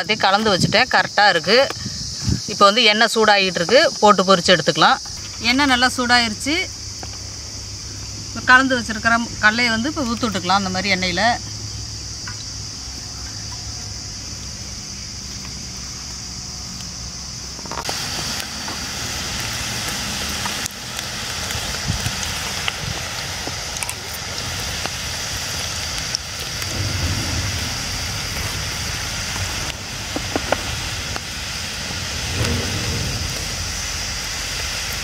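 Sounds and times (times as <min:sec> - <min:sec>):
batter sizzling in hot oil: 0:02.5 - 0:35.0
oil popping and spattering: 0:17.6 - 0:35.0.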